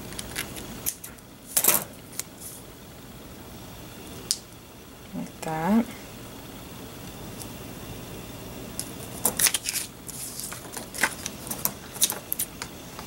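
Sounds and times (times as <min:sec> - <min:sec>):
stickers and tape clicking: 0:08.8 - 0:13.0
paper rustling: 0:09.2 - 0:12.6.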